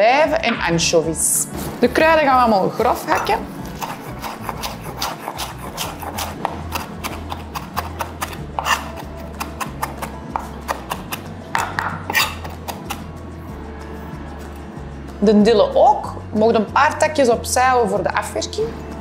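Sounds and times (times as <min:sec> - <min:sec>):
knife chopping on wooden board: 0:02.9 - 0:13.1.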